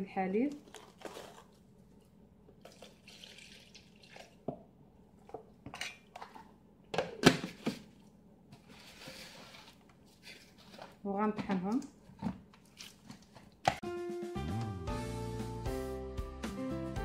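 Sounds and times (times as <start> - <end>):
milk pouring and splashing: 2.6 - 4.6, 12.4 - 13.7.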